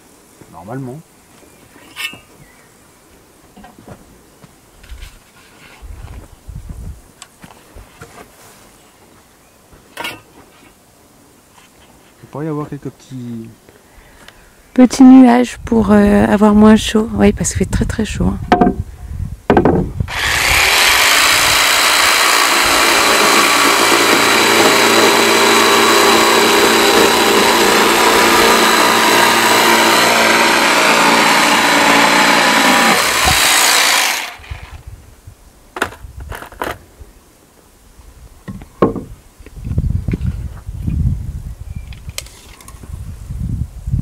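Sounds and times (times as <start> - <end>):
wooden knocks: 18.5 - 18.8, 19.5 - 19.9, 38.5 - 39.1
power saw cutting wood: 20.1 - 34.8.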